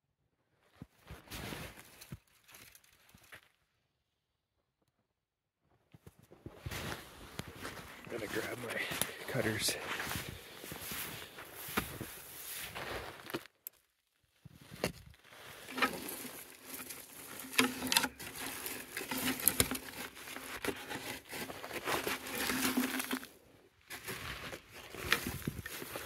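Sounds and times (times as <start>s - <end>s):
snow crunching: 6.5s - 13.4s, 15.3s - 26.0s
steel cable rattling and scraping: 15.4s - 23.4s.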